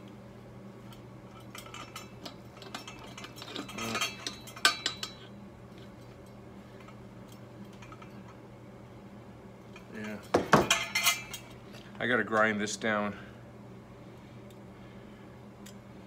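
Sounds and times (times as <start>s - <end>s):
metallic rattling: 9.8s - 11.5s.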